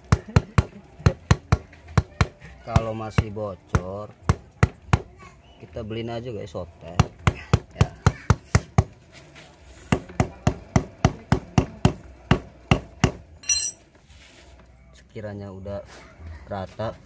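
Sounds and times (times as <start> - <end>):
metallic clink: 13.4 - 13.9.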